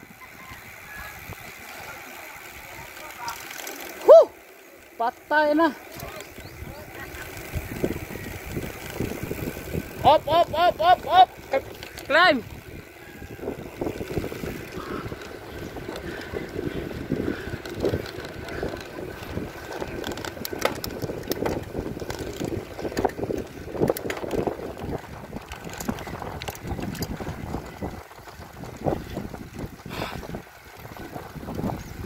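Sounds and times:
bicycle rolling: 0.0 - 32.0
sharp clicks: 5.8 - 6.5
wind buffeting microphone: 6.1 - 32.0.

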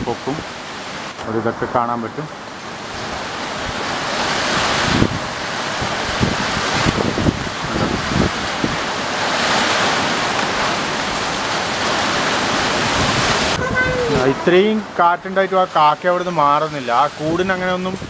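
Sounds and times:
wind gusting through foliage: 0.0 - 18.0
wind buffeting microphone: 2.8 - 14.9.

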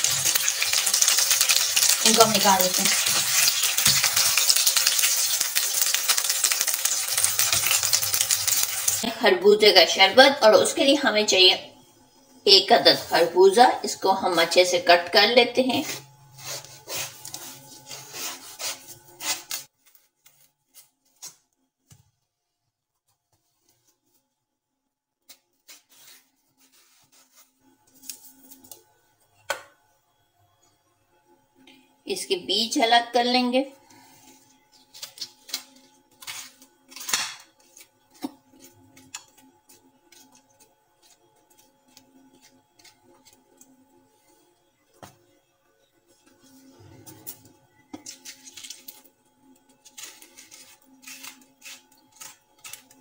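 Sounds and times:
utensil scraping melon seeds: 0.0 - 9.1, 15.7 - 19.7, 49.8 - 53.0
knife cutting through melon: 15.8 - 19.7, 25.6 - 27.5.

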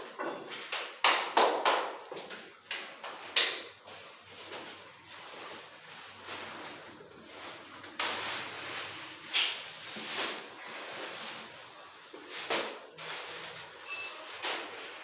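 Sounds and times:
sand shaken through sieve: 3.8 - 13.8
plastic bag rustling: 3.8 - 15.0.

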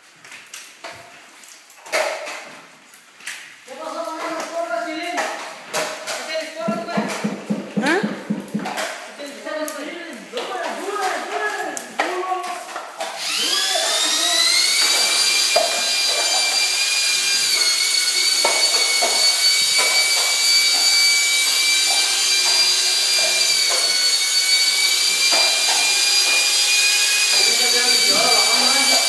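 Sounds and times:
knocks: 6.6 - 9.0
power tool motor whining: 7.0 - 8.6, 13.0 - 29.0.

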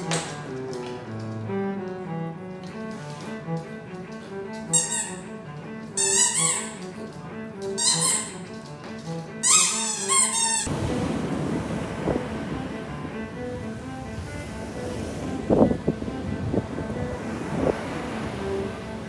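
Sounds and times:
bowed string music: 0.0 - 19.0
squeaky toy ball squeaking: 4.7 - 5.2, 6.0 - 6.8, 7.6 - 8.5, 9.4 - 10.7.

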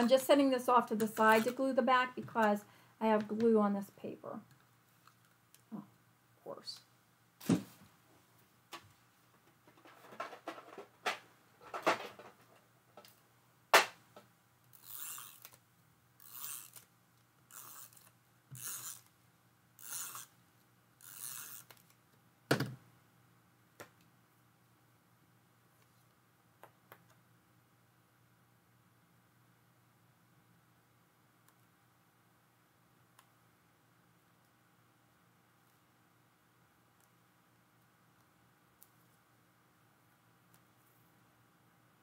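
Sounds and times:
tape runner strokes on card: 14.8 - 15.6, 16.2 - 16.9, 17.5 - 19.1, 19.8 - 20.4, 21.0 - 22.0.

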